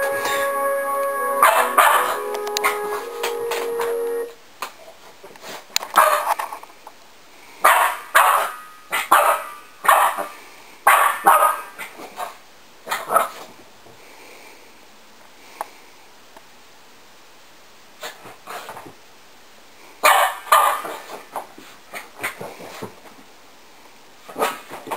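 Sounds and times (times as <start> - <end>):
puppy barking: 1.4 - 2.2, 7.7 - 10.2, 10.9 - 11.7, 20.0 - 21.0.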